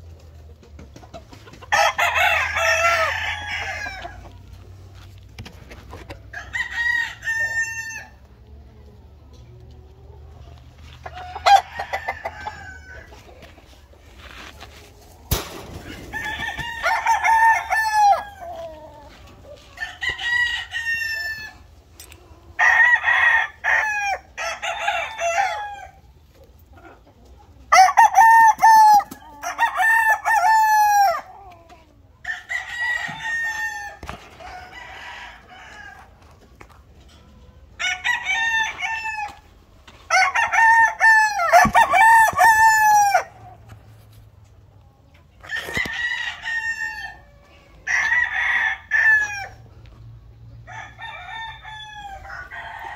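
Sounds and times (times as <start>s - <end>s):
roosters crowing: 1.5s - 8.3s, 10.8s - 13.5s, 14.2s - 21.7s, 22.4s - 26.1s, 27.7s - 31.6s, 32.2s - 36.3s, 37.8s - 43.8s, 45.4s - 49.7s, 50.6s - 52.9s.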